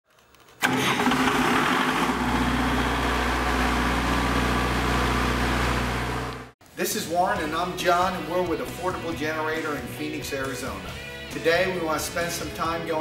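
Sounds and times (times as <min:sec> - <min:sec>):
diesel generator engine humming: 0:00.6 - 0:06.6.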